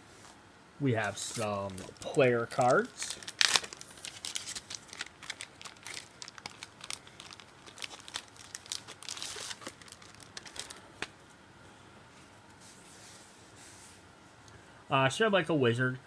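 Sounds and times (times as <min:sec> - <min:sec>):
plastic bag crinkling: 0:01.0 - 0:11.1.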